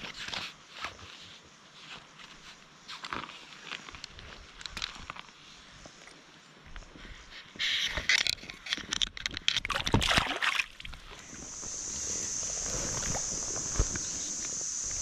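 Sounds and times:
water splashing and sloshing: 9.2s - 11.7s.

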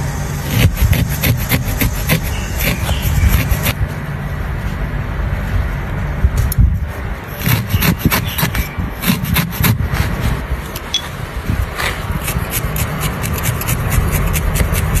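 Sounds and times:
fingers rubbing fibres: 0.0s - 3.8s, 7.3s - 10.4s, 11.8s - 15.0s
felting needle scratchy jabs: 0.3s - 3.8s, 7.3s - 9.8s, 12.2s - 15.0s.

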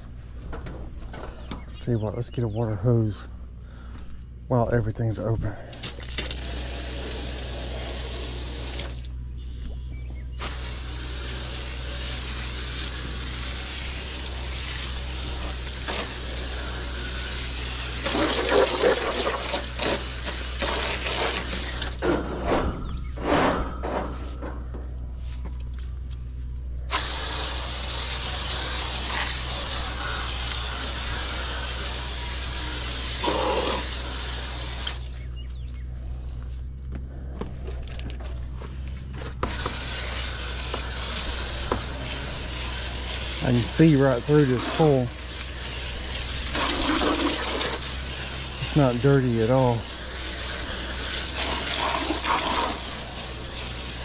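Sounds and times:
hose nozzle spraying water: 5.7s - 9.1s, 10.3s - 22.0s, 25.3s - 35.2s, 38.6s - 54.0s.

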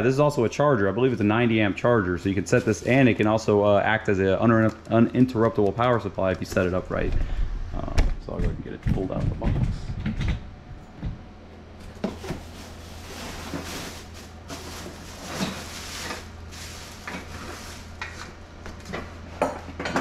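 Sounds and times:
plastic packaging crinkling: 11.9s - 18.3s.

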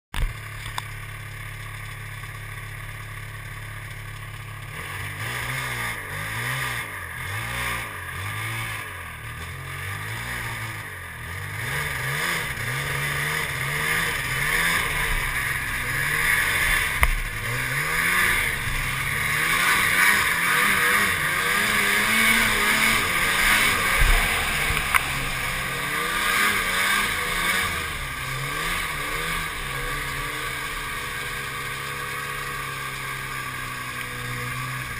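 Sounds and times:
snowmobile engine idling and revving: 0.2s - 34.9s
rushing noise: 12.5s - 32.0s.

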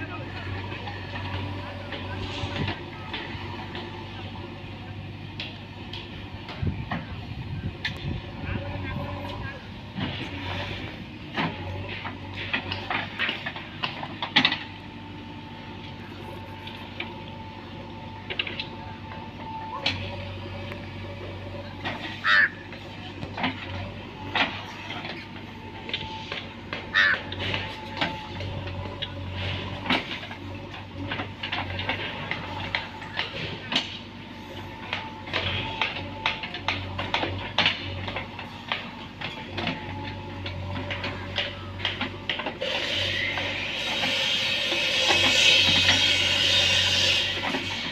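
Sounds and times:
diesel engine running: 0.0s - 47.9s
metallic clanks of digger arm: 9.0s - 14.8s, 18.2s - 47.9s.

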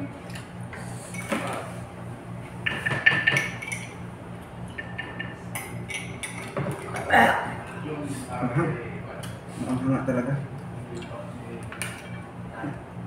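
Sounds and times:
utensils clinking on ceramic dishes: 2.7s - 4.0s, 4.7s - 7.2s.

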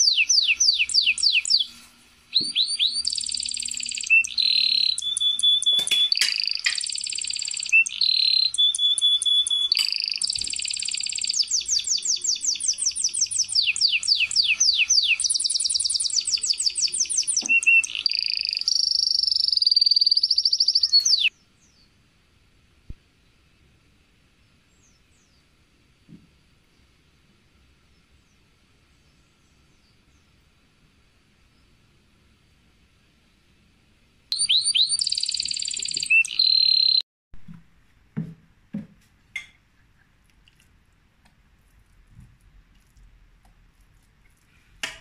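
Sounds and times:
bird trilling and chirping: 0.0s - 21.3s, 34.3s - 37.0s.

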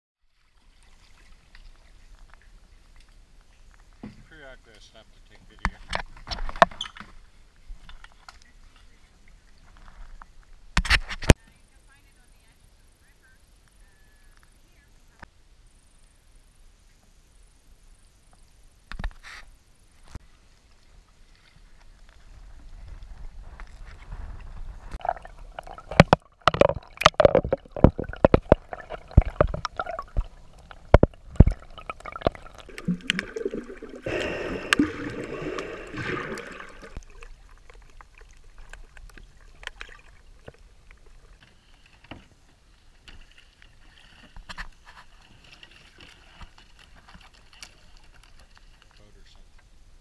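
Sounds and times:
gurgling rush of water: 24.8s - 41.4s
water splashing: 24.8s - 41.8s.

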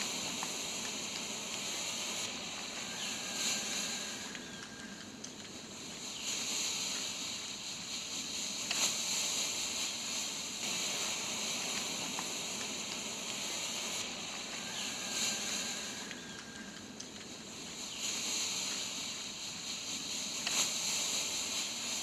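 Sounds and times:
smoke grenades hissing: 6.0s - 16.6s.

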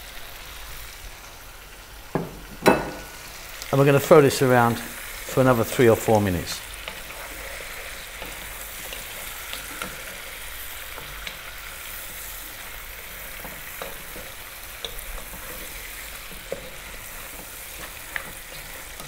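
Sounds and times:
meat sizzling in oil: 0.0s - 19.0s
wooden spoon tapping a pot: 2.1s - 3.2s.

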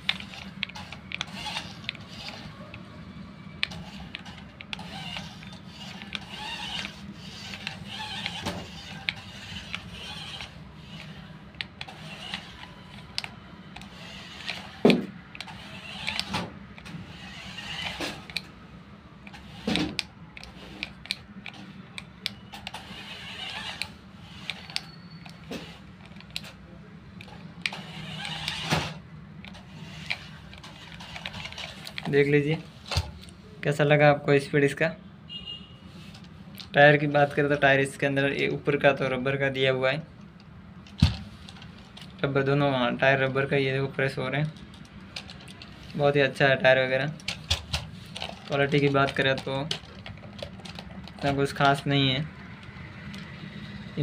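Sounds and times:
toy car electric motor whirring: 0.0s - 2.9s, 3.6s - 18.5s, 19.2s - 26.6s, 27.2s - 33.3s, 44.6s - 46.1s, 47.2s - 54.0s.

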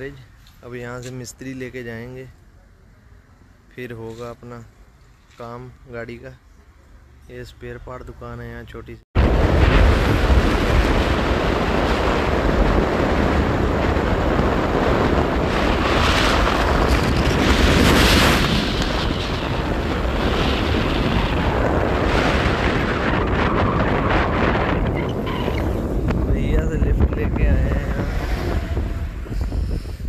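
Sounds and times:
wind buffeting microphone: 9.2s - 30.0s.

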